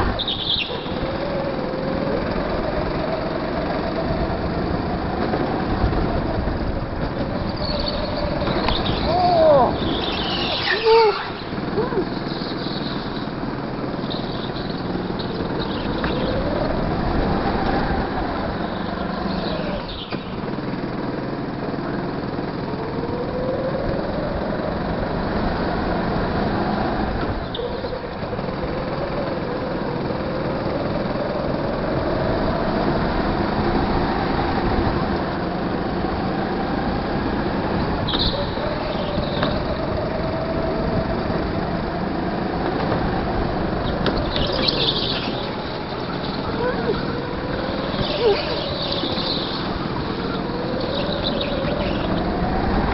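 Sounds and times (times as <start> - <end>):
go-kart engine revving: 0.0 - 52.9
short high squeaks: 7.5 - 13.3.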